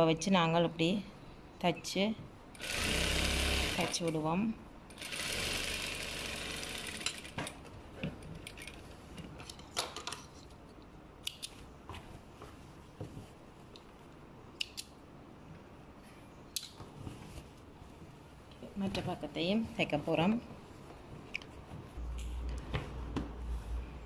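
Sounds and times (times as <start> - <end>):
sewing machine running: 2.6 - 4.0, 5.0 - 7.4
fabric rustling: 11.6 - 14.2, 15.6 - 24.0.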